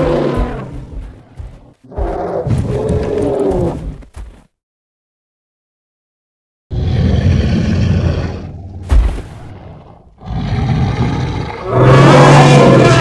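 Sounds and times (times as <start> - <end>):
sharp thump: 8.8 - 9.5.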